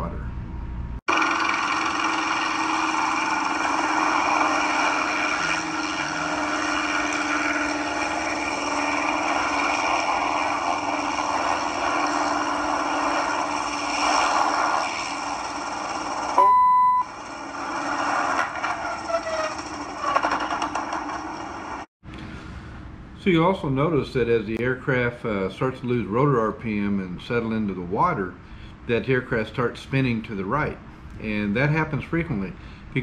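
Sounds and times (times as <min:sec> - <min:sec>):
loud single-pitched beep: 0:16.4 - 0:17.1.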